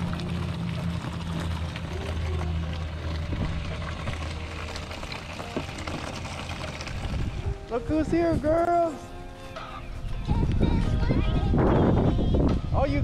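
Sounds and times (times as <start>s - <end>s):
dog lapping water: 0.0s - 7.7s
water trickling: 0.0s - 9.7s
low steady hum: 0.0s - 11.1s.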